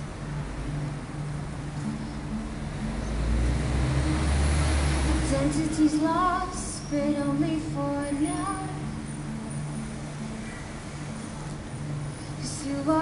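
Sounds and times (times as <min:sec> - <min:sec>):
vehicle passing with deep rumble: 0:00.0 - 0:13.0
woman singing: 0:05.2 - 0:09.0, 0:12.4 - 0:13.0.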